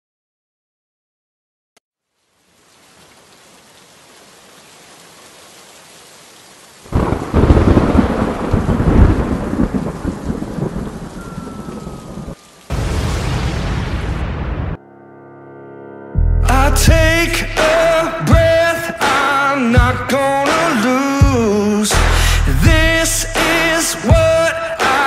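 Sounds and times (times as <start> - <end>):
rain hiss: 2.0 - 14.4, 22.0 - 24.4
harsh rain noise: 2.1 - 14.8, 17.6 - 25.0
rolling thunderclap: 6.9 - 14.8.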